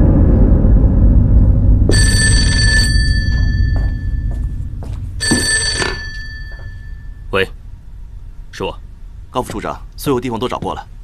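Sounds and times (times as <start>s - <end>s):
low rumble: 0.0s - 9.3s
telephone bell ringing: 1.9s - 4.5s, 5.2s - 7.2s.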